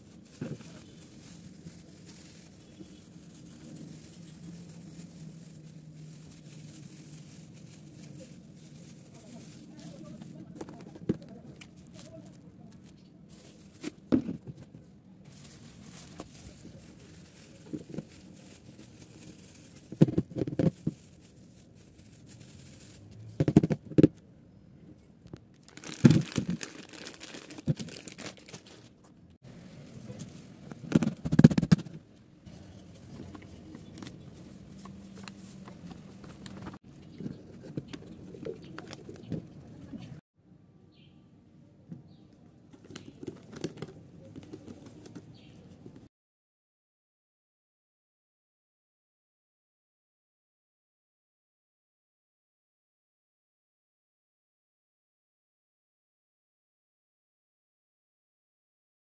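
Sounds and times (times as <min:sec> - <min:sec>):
plastic packets crinkling: 0:00.0 - 0:14.1, 0:15.3 - 0:23.8, 0:25.5 - 0:29.0
plastic tubs and jar knocking: 0:19.9 - 0:21.0, 0:23.4 - 0:24.2.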